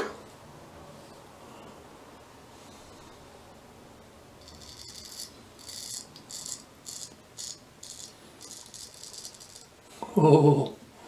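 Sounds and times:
razor scraping stubble: 4.4 - 9.7.

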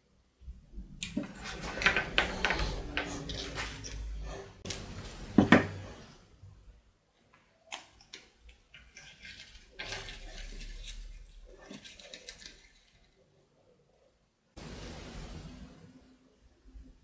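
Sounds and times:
hard objects knocking on wooden workbench: 5.4 - 5.8.

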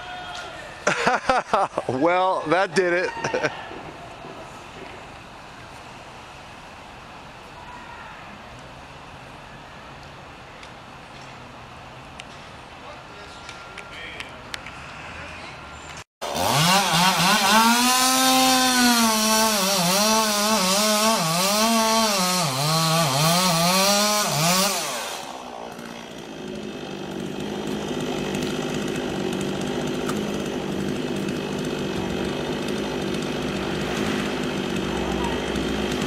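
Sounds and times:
chainsaw revving: 16.2 - 36.0
faint chainsaw running: 16.2 - 36.0.

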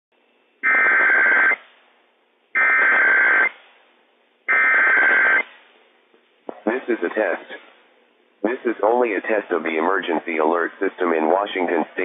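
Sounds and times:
faint radio hiss: 5.2 - 12.0.

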